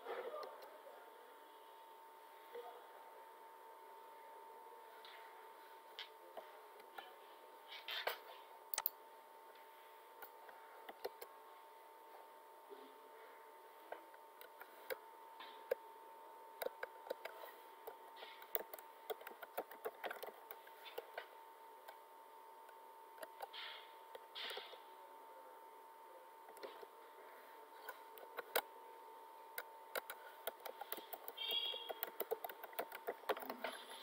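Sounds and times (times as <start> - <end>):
faint steady hum: 0.0 - 34.0
keyboard typing: 8.7 - 8.9, 10.2 - 11.3, 14.1 - 15.8, 16.6 - 22.0, 22.6 - 24.8, 27.8 - 28.7, 29.5 - 34.0.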